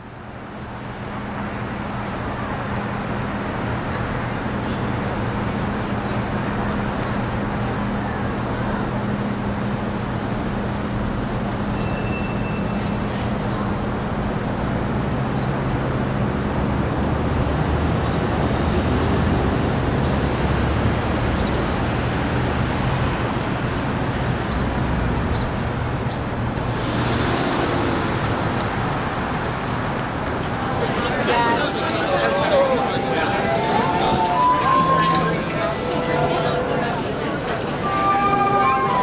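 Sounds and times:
street traffic noise: 0.0s - 39.0s.

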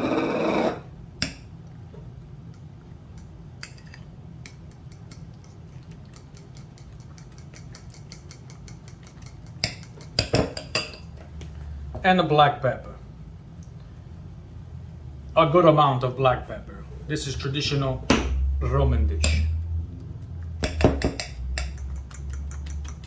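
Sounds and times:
fork beating eggs in glass bowl: 3.2s - 11.0s, 20.6s - 23.0s.

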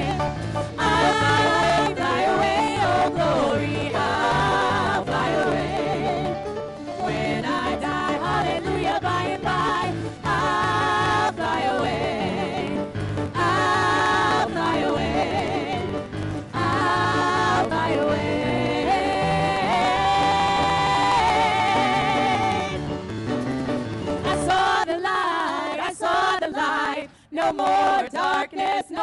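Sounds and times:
women's group singing gospel: 0.0s - 22.9s, 24.2s - 29.0s
instrumental accompaniment: 0.0s - 24.8s.

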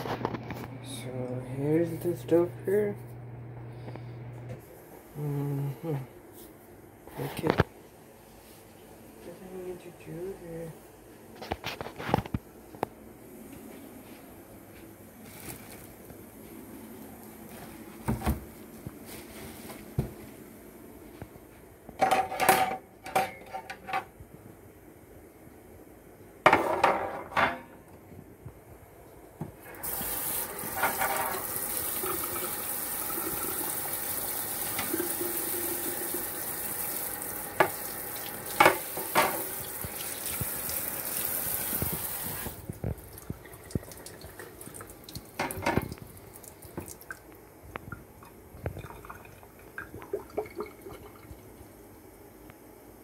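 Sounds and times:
wire grid clattering in sink: 22.0s - 24.1s
tap water running into sink: 29.8s - 47.2s.

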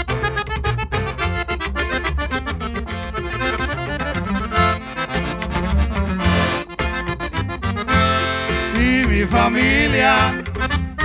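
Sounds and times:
button accordion melody: 0.0s - 11.0s
guitar strumming: 0.0s - 11.0s
upright bass line: 0.0s - 11.0s.

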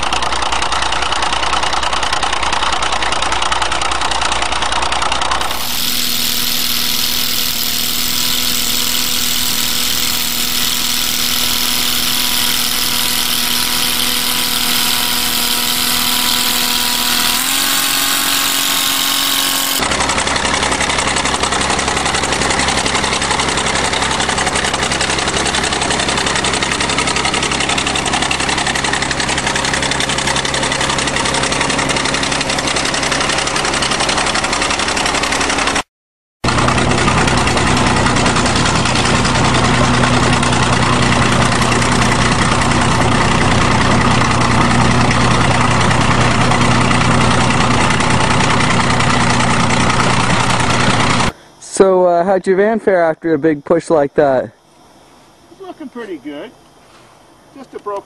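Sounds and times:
bulldozer engine under load: 0.0s - 35.8s, 36.5s - 51.3s.

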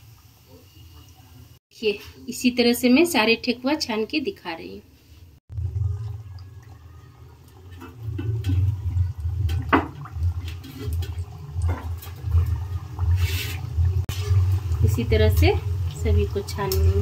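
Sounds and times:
oil bubbling and sizzling: 0.0s - 1.6s, 5.3s - 17.0s.

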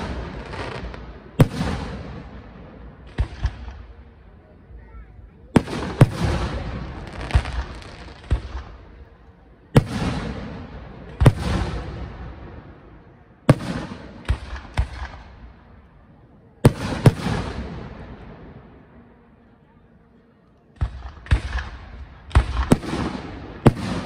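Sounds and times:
firework shells booming: 20.8s - 24.0s.

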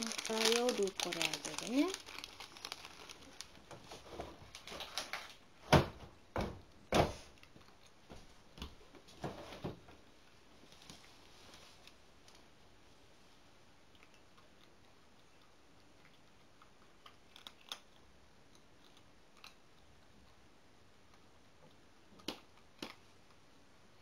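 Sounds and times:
cat eating from a bowl: 13.3s - 23.5s.

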